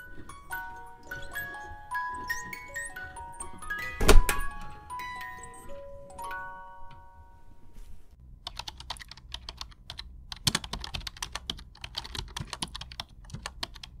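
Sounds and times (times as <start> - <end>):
rapid irregular clicking and tapping: 8.5 - 14.0.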